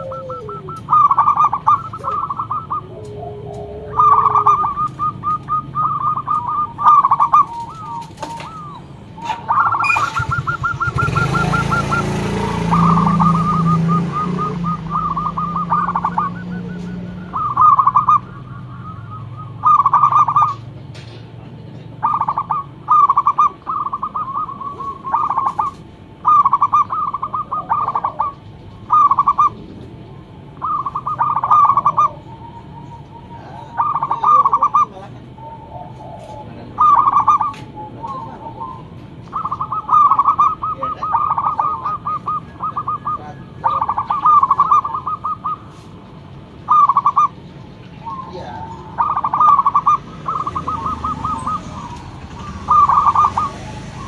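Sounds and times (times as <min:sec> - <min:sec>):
dove cooing: 0:00.0 - 0:54.0.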